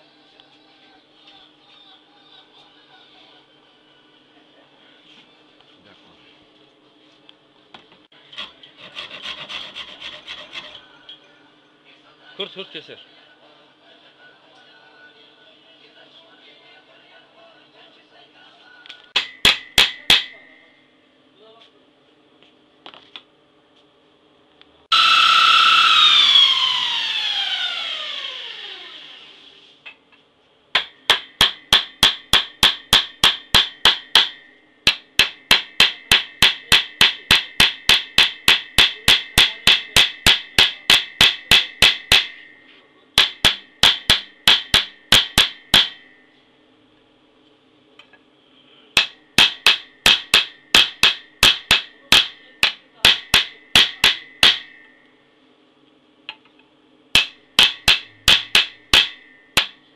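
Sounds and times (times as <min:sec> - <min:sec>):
belt grinder winding down: 0:24.9 - 0:29.4.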